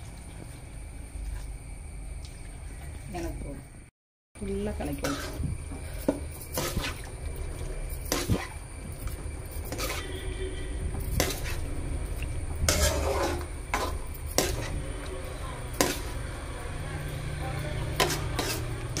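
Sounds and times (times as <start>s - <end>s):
metal ladle scraping a metal pan: 4.9s - 7.1s, 9.5s - 11.8s, 12.6s - 15.1s, 15.7s - 16.2s, 17.8s - 19.0s.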